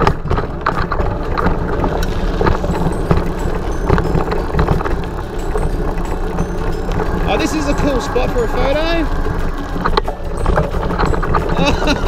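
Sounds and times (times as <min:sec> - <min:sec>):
bike rattling over bumps: 0:00.0 - 0:12.0
bike tyres rolling on dirt: 0:00.0 - 0:12.0.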